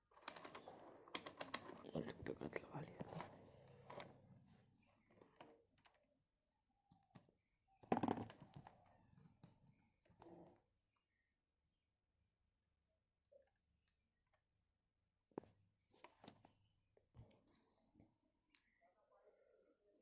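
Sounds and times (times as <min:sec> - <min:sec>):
faint clicks and rustling of handling: 0:00.1 - 0:06.2.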